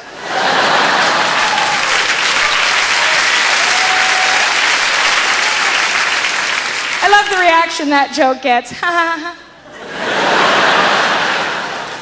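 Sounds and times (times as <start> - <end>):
crowd calling out: 0.2 - 6.0
audience applauding: 0.2 - 7.5.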